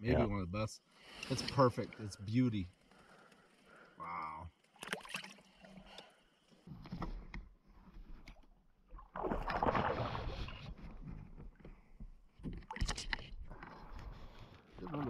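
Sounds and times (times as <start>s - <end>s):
water splash: 4.8s - 5.5s, 8.9s - 10.8s.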